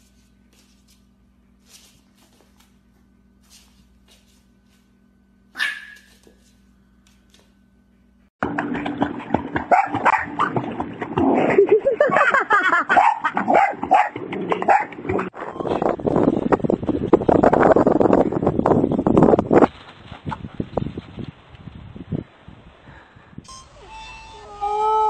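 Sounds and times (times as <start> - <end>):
dog barking and yelping: 5.6 - 6.2, 12.9 - 15.0
dog yipping: 5.6 - 6.3
water splashing in pool: 8.4 - 15.3.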